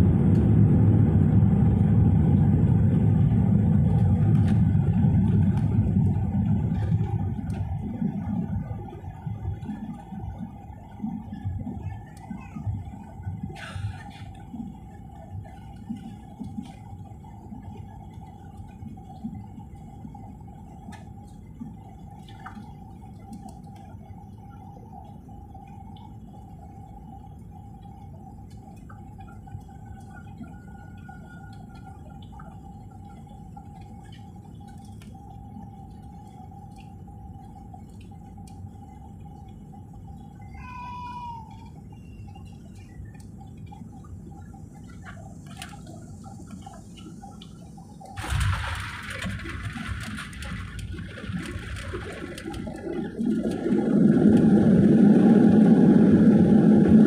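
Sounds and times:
constant whine: 0.0 - 57.0
jet engine and airflow rumble: 0.0 - 57.0
falling whine: 14.4 - 57.0.

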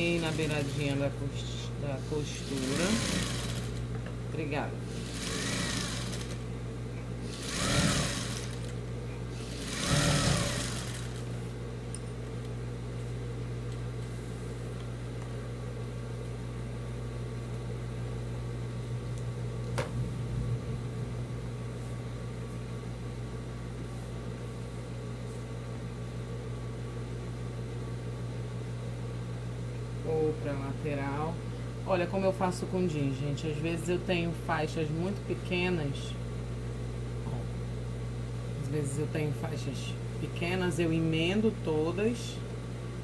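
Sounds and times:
motor hum: 0.0 - 26.3
sewing machine stitching: 2.4 - 3.8, 5.0 - 6.4, 7.3 - 8.7, 9.4 - 11.2.

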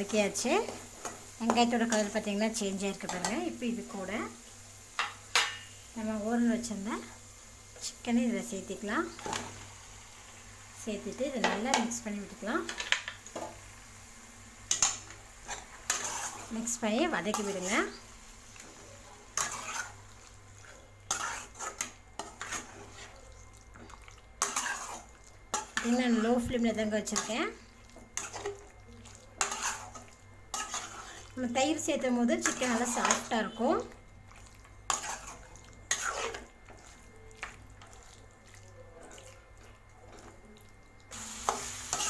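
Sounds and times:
spatula scraping metal pan: 15.4 - 16.5, 19.4 - 20.0, 21.1 - 23.1, 24.4 - 26.2, 29.4 - 31.3, 32.4 - 33.3, 34.9 - 36.8.

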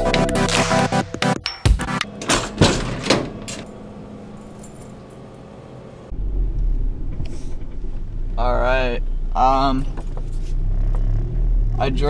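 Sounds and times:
vending machine humming: 0.0 - 8.1
truck rumbling inside cab: 2.0 - 12.0
keys jangling: 3.5 - 5.3.

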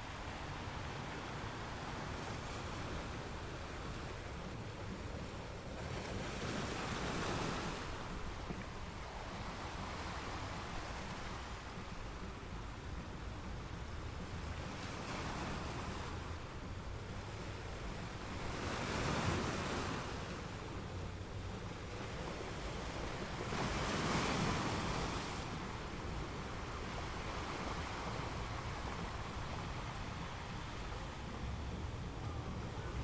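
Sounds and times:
sea surf breaking on rocks: 21.6 - 33.0.

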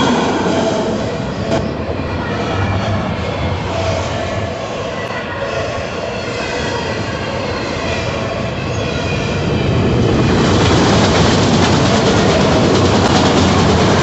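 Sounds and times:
freight train rumbling past: 0.0 - 14.0
steel wheels rattling on rail: 6.9 - 14.0.

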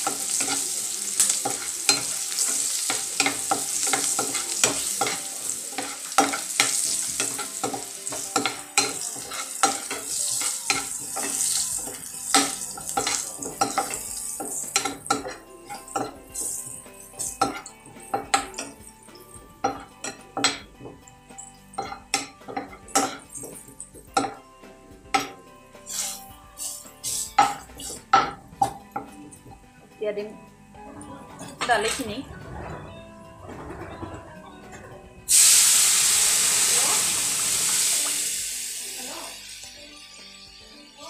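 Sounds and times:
onions sizzling in oil: 0.0 - 18.9, 25.2 - 28.1, 35.3 - 40.5
spatula scraping and tapping pan: 0.0 - 18.9, 21.7 - 24.4, 25.1 - 29.2.

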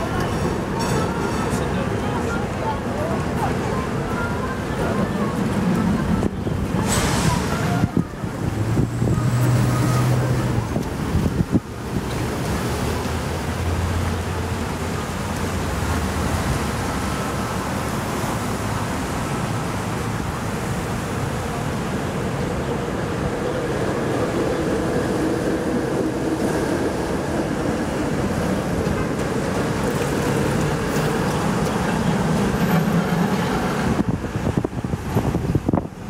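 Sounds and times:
road traffic: 0.0 - 36.0
wind buffeting microphone: 1.8 - 12.7, 22.0 - 36.0.

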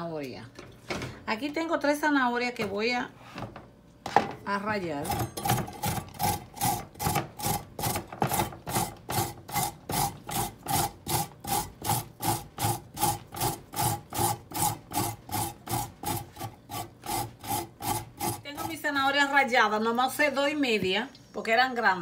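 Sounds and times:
carrot being grated by hand: 5.0 - 19.1.

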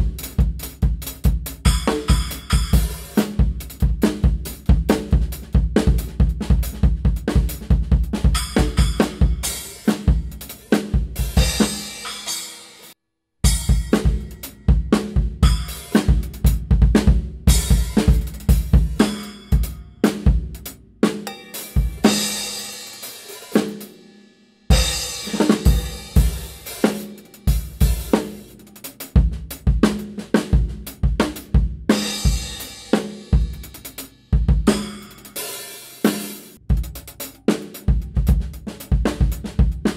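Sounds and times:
snare drum: 1.6 - 12.7, 24.7 - 39.9
hi-hat: 25.2 - 29.7, 33.4 - 35.4, 36.0 - 39.9
kick drum: 36.7 - 37.0.

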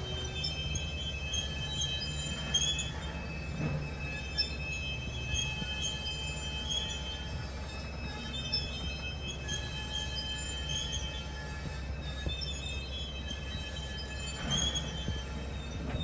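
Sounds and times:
freight cars rumbling: 0.0 - 16.0
steel wheels squealing: 0.0 - 16.0.

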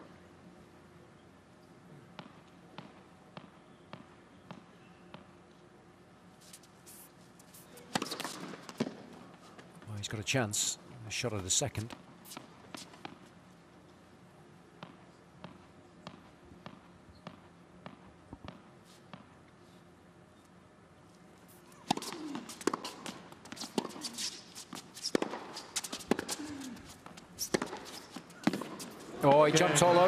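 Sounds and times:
tennis ball bouncing on hard court: 2.1 - 5.3, 7.8 - 9.1, 14.8 - 19.3, 21.8 - 26.4, 27.1 - 29.0
racket striking ball: 7.8 - 9.0, 21.8 - 24.1, 25.1 - 26.7, 27.5 - 29.0.

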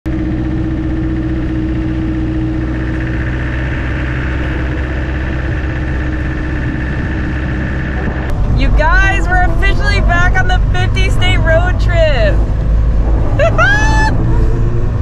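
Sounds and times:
car engine drone: 0.1 - 15.0
road noise: 0.1 - 15.0.

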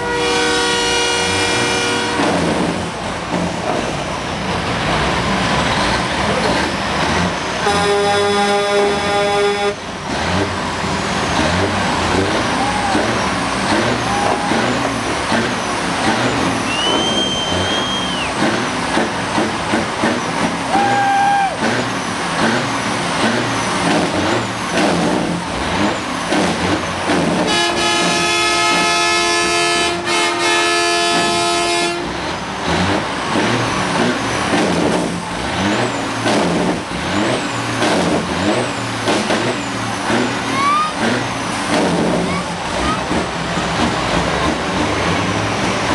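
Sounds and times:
truck air horn blast: 0.0 - 2.6, 7.6 - 9.8, 27.4 - 32.2
diesel trucks running: 0.0 - 45.9.

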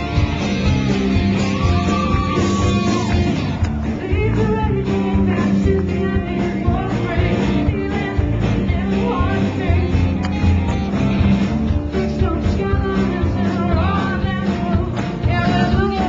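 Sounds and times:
live rock band playing: 0.0 - 16.0
singer singing: 3.8 - 10.7, 11.8 - 16.0.

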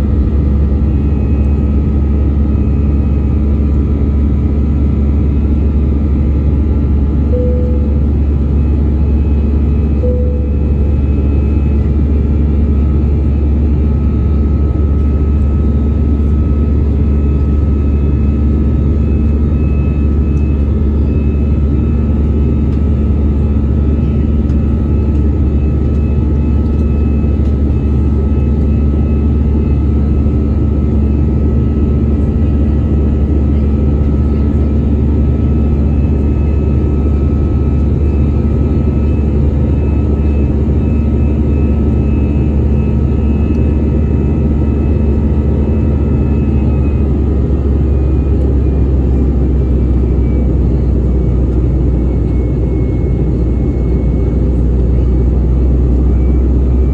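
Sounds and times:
faint steady whining tones: 0.0 - 56.9
jet engine roar and airflow: 0.0 - 56.9.

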